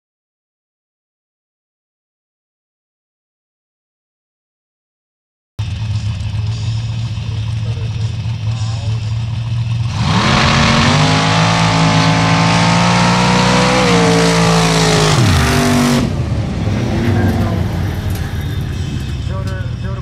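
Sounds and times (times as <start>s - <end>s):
drag car engines idling: 5.6s - 12.5s, 14.2s - 20.0s
drag car engines revving: 5.6s - 20.0s.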